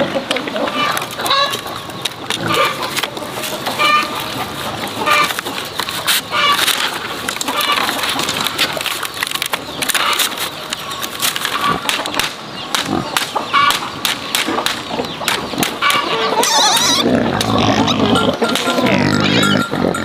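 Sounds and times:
chickens clucking: 0.0s - 20.0s
bamboo strips clicking and clattering: 0.2s - 16.1s.

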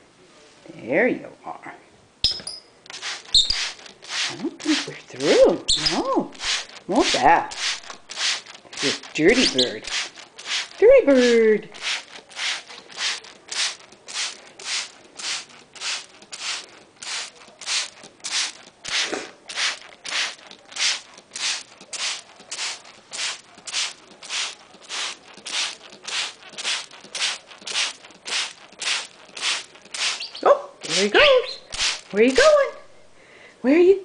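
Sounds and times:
spray bottle hissing sprays: 2.3s - 32.8s.

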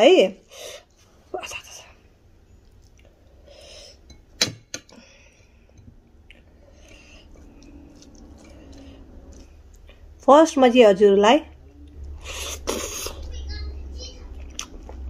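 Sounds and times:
tableware clink: 4.0s - 5.0s
food mixed by hand: 6.3s - 10.9s.

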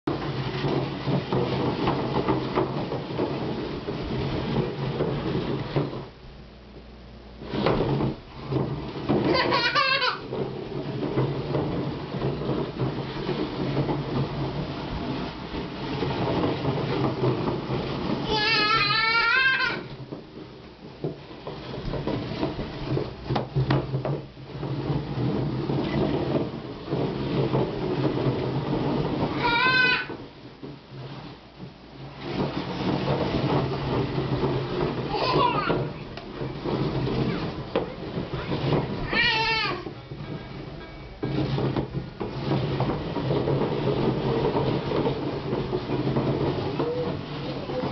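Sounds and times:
chair legs scraping on tile: 0.0s - 6.2s, 7.4s - 47.9s
toddler squealing: 29.4s - 30.1s.

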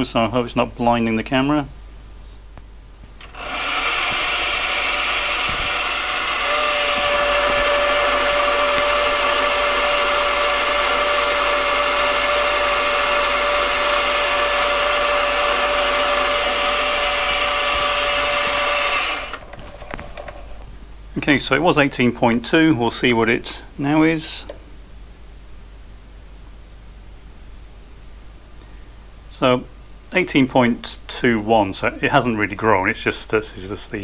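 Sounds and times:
steady whine: 2.0s - 21.7s
lathe running: 3.2s - 20.3s.

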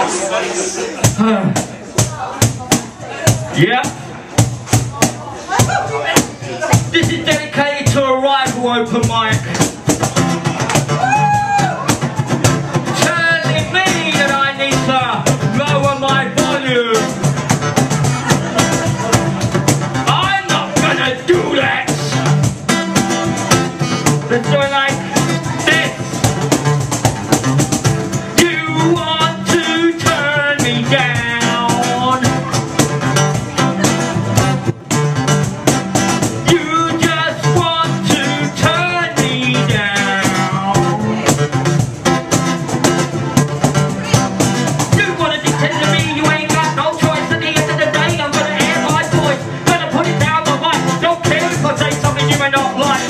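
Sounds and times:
strummed guitar: 0.0s - 53.0s
person rapping and singing: 5.0s - 9.6s, 12.9s - 17.2s, 20.0s - 22.3s, 23.8s - 26.2s, 28.3s - 32.9s, 36.4s - 41.4s, 44.8s - 53.0s.

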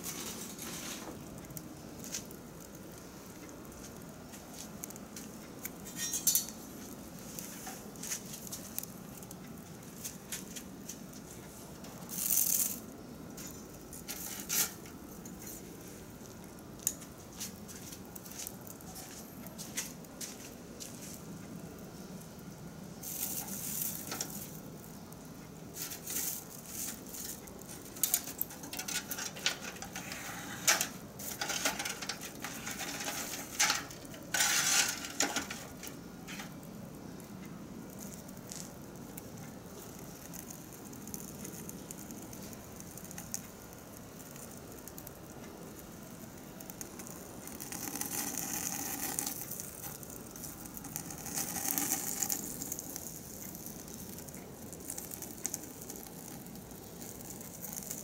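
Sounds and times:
fire hissing: 0.0s - 58.0s
sticks poked inside steel drum grill: 4.7s - 9.3s, 10.0s - 15.7s, 23.0s - 24.6s, 25.8s - 36.6s.

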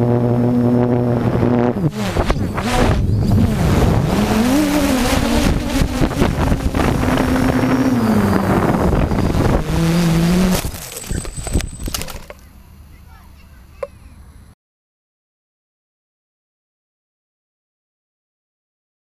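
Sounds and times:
drone motors whining: 0.0s - 14.5s
rush of air noise: 0.8s - 12.2s.

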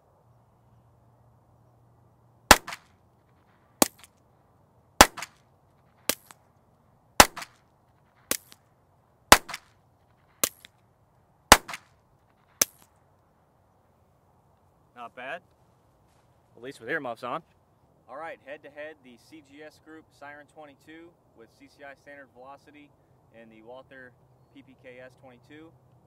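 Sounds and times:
suppressed pistol shots: 2.5s - 2.9s, 3.8s - 4.1s, 5.0s - 5.4s, 6.1s - 6.4s, 7.2s - 7.6s, 8.3s - 8.6s, 9.3s - 9.7s, 11.5s - 11.9s
unsuppressed pistol shots: 2.5s - 2.9s, 3.8s - 4.1s, 5.0s - 5.4s, 6.0s - 6.4s, 7.2s - 7.6s, 8.3s - 8.6s, 9.3s - 9.7s, 10.4s - 10.7s, 11.5s - 11.9s.

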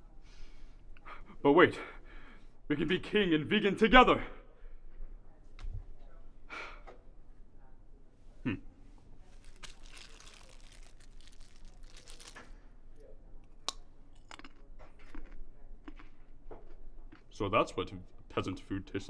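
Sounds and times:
crunchy chewing of snack food: 9.3s - 12.6s, 13.7s - 17.4s
food wrapper crinkling and tearing: 9.3s - 12.6s.

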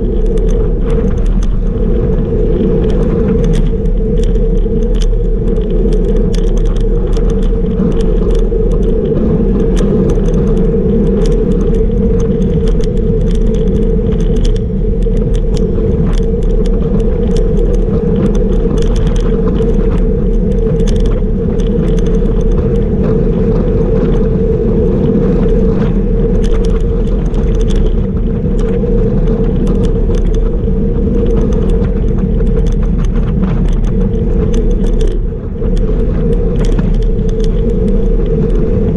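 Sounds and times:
bike rattles and clicks: 0.0s - 38.9s
wind rushing: 0.0s - 38.9s.

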